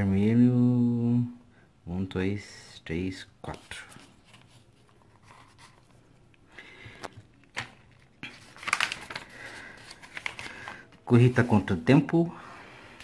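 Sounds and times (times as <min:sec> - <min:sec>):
paper pages rustling: 0:03.5 - 0:06.2, 0:06.9 - 0:11.8.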